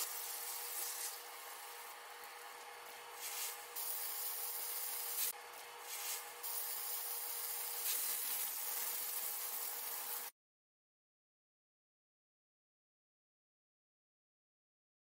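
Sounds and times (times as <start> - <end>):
food sizzling in a skillet: 0.0 - 1.9, 3.2 - 10.3.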